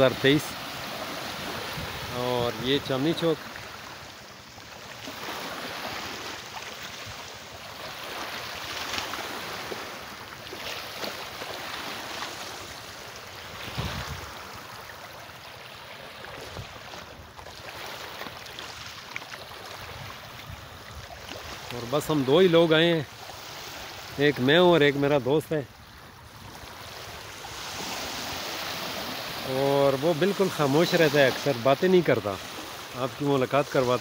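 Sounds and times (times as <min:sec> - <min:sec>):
lake waves lapping on shore: 0:00.0 - 0:34.0.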